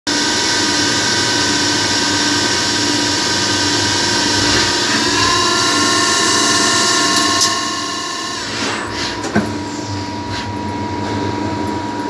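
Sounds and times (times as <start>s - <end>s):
lathe machine whine: 0.8s - 10.3s.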